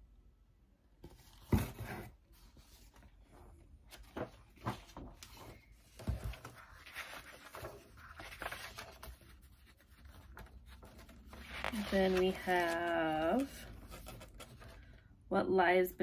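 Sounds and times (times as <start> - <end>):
paper rustling: 1.3 - 14.9.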